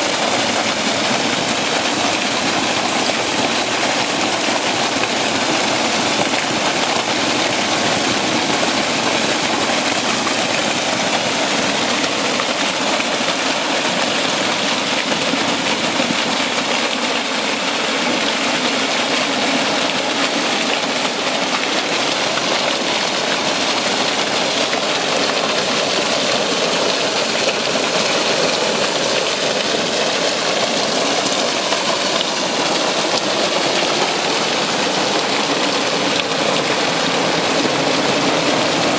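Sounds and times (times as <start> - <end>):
spring water rushing over stones: 0.0 - 38.9.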